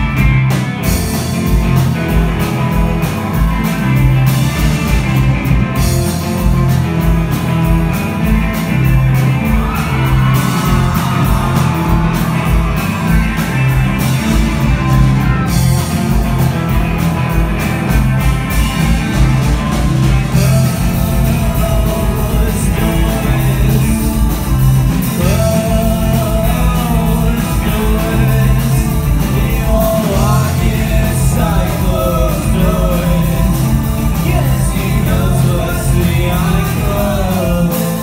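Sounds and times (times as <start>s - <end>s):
rock band playing live: 0.0s - 38.0s
lead vocal singing: 9.2s - 14.3s, 20.1s - 38.0s.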